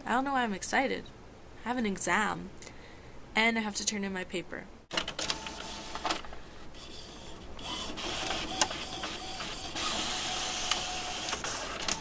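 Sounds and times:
printer mechanism whirring: 4.9 - 12.0
printer click: 7.6 - 12.0.

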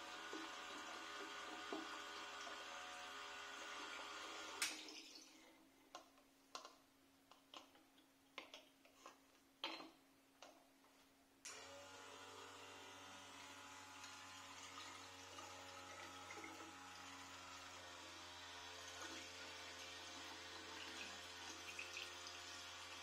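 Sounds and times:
electric pump humming: 0.0 - 5.2, 11.5 - 23.0.

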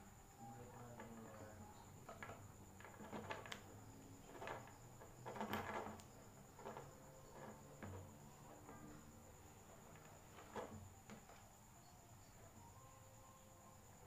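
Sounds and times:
wires rustling and clicking: 0.6 - 11.8.

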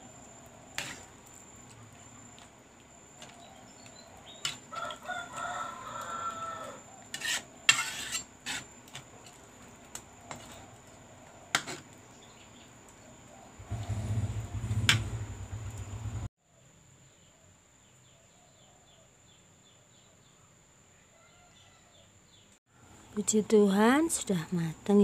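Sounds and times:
metal spatula scraping a pan: 0.7 - 1.2, 4.3 - 5.0, 7.0 - 11.9
rooster crowing: 4.7 - 7.0, 20.9 - 22.1.

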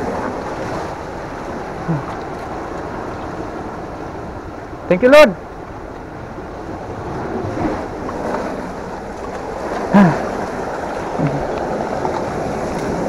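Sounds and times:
surf on rocky shore: 0.0 - 13.0
wind on microphone: 0.0 - 13.0
low vocal sound: 1.8 - 2.2, 9.9 - 10.4, 11.1 - 11.6.

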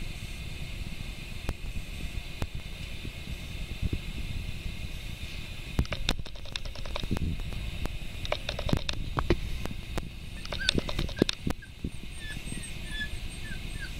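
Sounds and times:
dog claws clicking on tile: 10.4 - 11.5.

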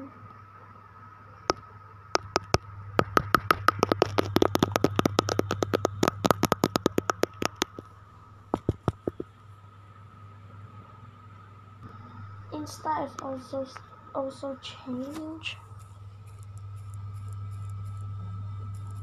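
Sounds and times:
faint steady hum: 0.0 - 19.0
fast sharp clicks: 2.2 - 7.9, 8.5 - 9.3.

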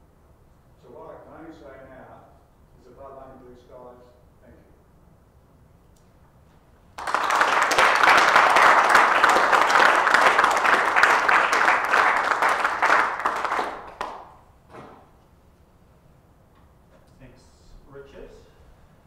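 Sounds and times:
people applauding: 7.0 - 14.4.

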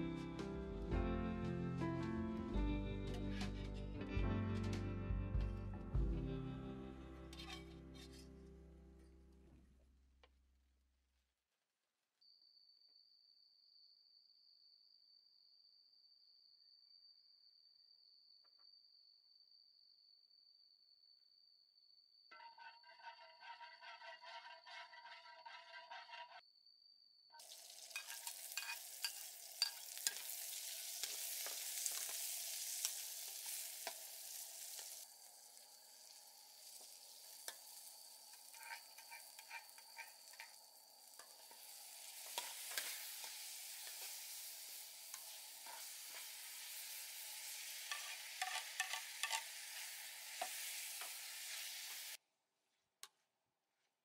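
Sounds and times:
metal spatula scraping a pan: 3.2 - 3.8, 7.3 - 8.4, 22.3 - 26.4, 27.4 - 52.2
food sizzling in hot oil: 7.3 - 8.2, 27.4 - 52.2.

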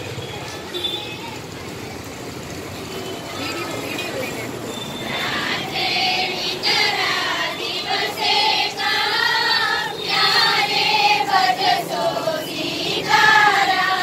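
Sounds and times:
girls singing in unison: 5.0 - 14.0.

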